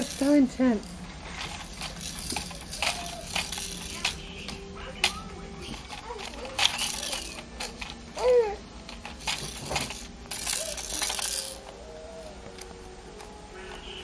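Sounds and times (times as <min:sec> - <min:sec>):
plastic baby toys rattling: 0:00.0 - 0:12.7
baby vocal sound: 0:08.2 - 0:08.6.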